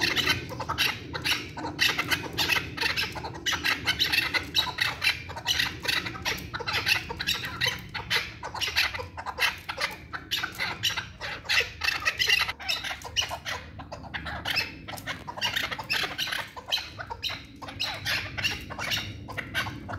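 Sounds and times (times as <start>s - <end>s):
partridge clucking calls: 0.0s - 19.9s.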